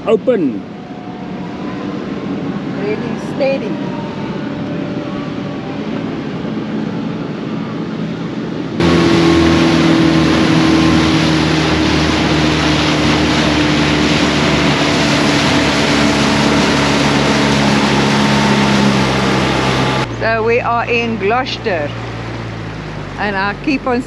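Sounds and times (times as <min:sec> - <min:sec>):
diesel engine hum: 0:00.0 - 0:24.0
water rushing past hull: 0:08.8 - 0:24.0.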